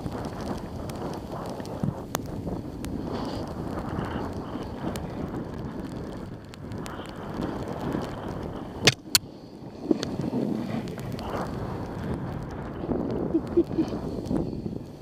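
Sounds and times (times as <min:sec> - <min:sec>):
snow scraping under sliding rider: 0:00.0 - 0:08.8, 0:09.4 - 0:15.0
wind buffeting microphone: 0:00.0 - 0:15.0
sharp clicks: 0:08.8 - 0:09.2.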